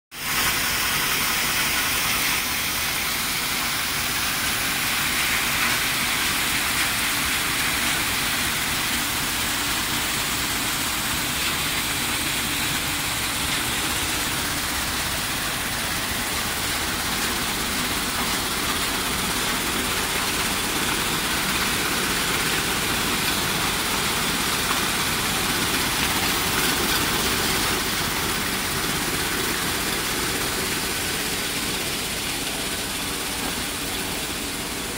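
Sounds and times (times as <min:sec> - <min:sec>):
steady machinery noise: 0:00.2 - 0:34.9.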